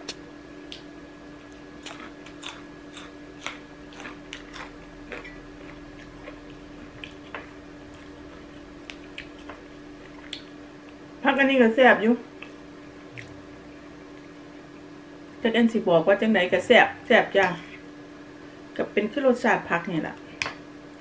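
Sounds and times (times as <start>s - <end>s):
person biting and chewing food: 0.0s - 11.0s
faint steady hum: 0.0s - 21.0s.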